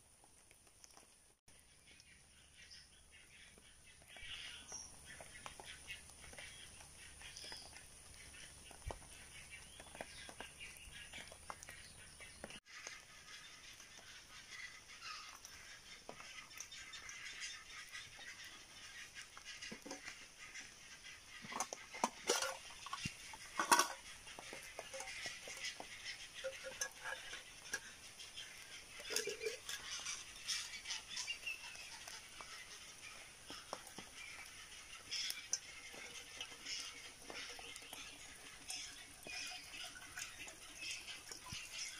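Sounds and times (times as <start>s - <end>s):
wood fire crackling: 0.0s - 2.4s, 3.5s - 41.9s
metal pots clinking: 21.4s - 30.6s, 35.0s - 41.9s.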